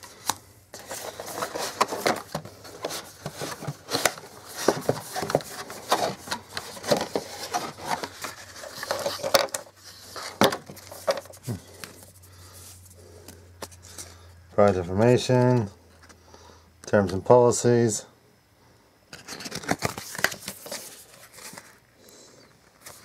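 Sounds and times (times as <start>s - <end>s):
cardboard packaging rustling: 0.0s - 13.0s, 19.2s - 21.8s, 22.7s - 23.0s.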